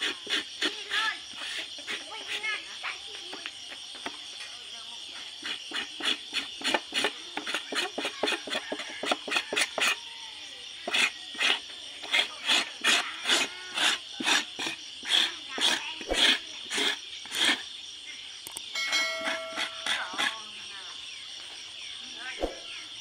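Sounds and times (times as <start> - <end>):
knife scraping dried hide: 0.0 - 2.4, 5.1 - 10.0, 10.8 - 17.7, 19.2 - 20.5.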